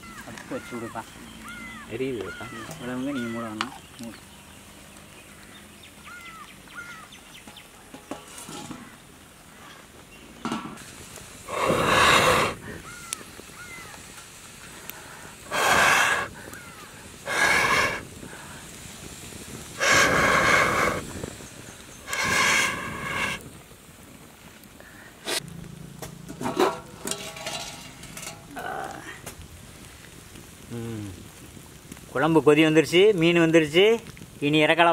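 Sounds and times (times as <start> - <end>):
blowing through a metal pipe: 11.5 - 12.7, 15.4 - 16.3, 17.2 - 18.1, 19.8 - 21.3, 22.0 - 23.4.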